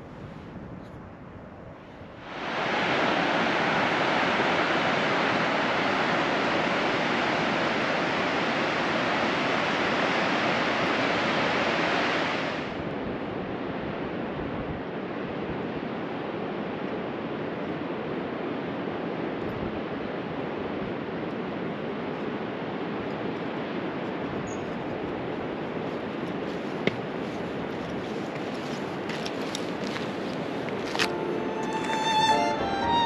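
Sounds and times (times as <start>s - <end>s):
fast mountain river rushing: 2.2s - 12.9s, 25.2s - 33.0s.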